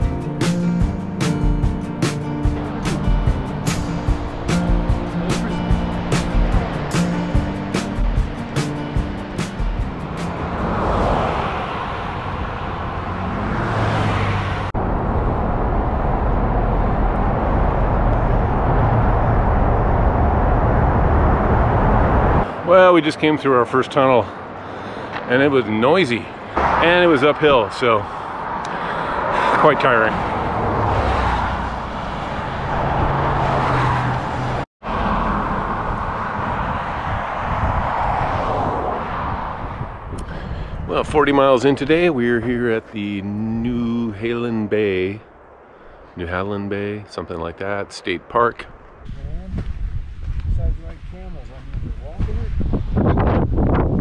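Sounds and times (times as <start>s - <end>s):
low engine hum: 0.0s - 22.6s
highway traffic noise: 0.0s - 54.0s
tyre and road noise: 0.0s - 54.0s
traffic rumble in tunnel: 2.3s - 54.0s
person speaking: 40.9s - 45.3s.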